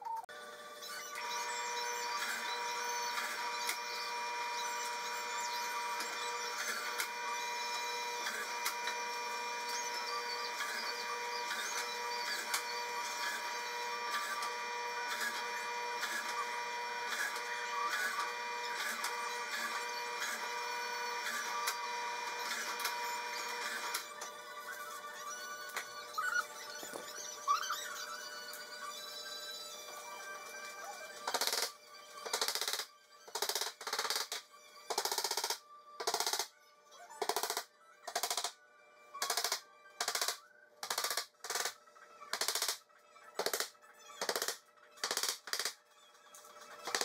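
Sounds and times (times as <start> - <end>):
drill press whining: 0.3 - 31.7.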